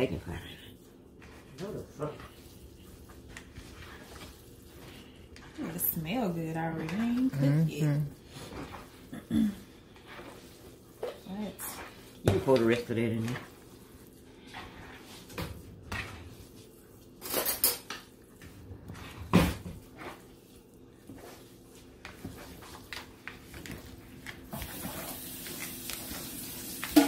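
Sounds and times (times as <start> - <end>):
cutlery and dishes clinking: 17.2 - 18.0
water running from a tap: 24.6 - 27.0.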